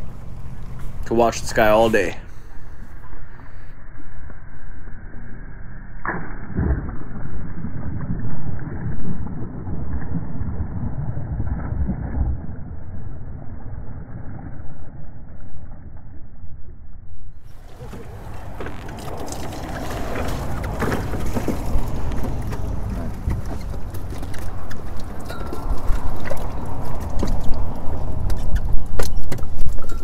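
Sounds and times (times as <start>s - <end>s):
net splashing into water: 17.5s - 28.2s.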